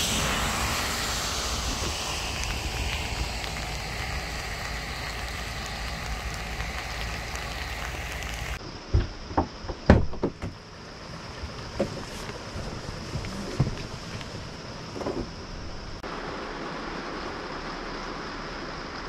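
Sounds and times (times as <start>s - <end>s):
outdoor low rumble: 0.0s - 8.6s
knocks and thumps: 8.9s - 10.6s.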